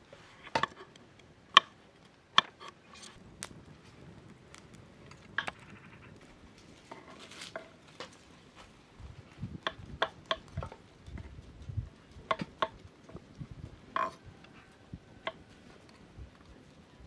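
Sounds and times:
scattered clicks: 9.5 - 16.8.

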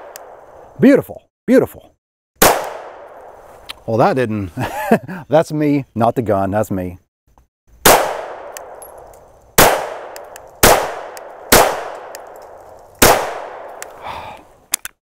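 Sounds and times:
pistol shots echoing: 2.4 - 3.3, 7.8 - 13.9
small click: 14.7 - 15.0.

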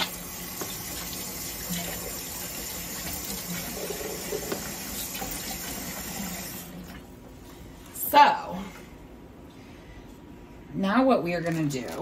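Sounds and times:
faucet running into steel sink: 0.0 - 7.0
hands rinsed under water: 0.0 - 7.0.

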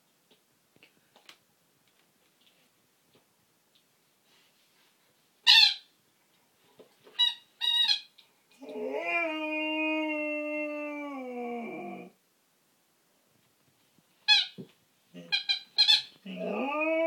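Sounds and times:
dog howling: 8.6 - 12.2, 16.3 - 17.0.

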